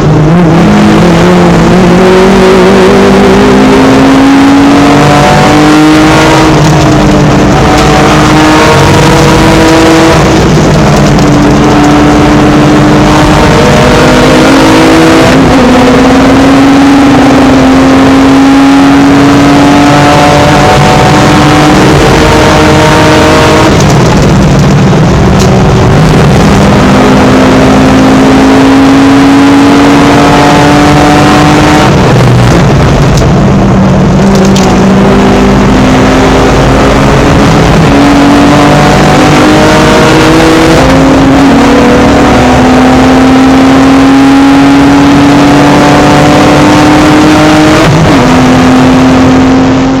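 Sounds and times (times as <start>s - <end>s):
race car engine at full load: 0.0s - 50.0s.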